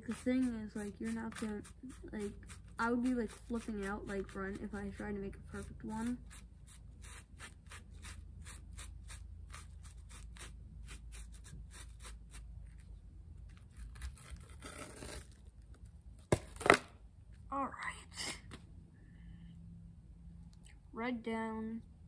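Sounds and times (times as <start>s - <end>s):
tool scratching foam board: 0.0s - 12.8s.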